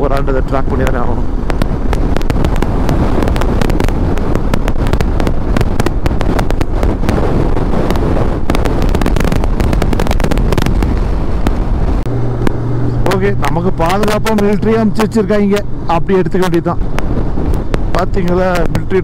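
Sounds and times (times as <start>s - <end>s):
motorcycle engine drone: 0.0s - 19.0s
steady low hum: 0.0s - 19.0s
wind buffeting microphone: 0.0s - 19.0s.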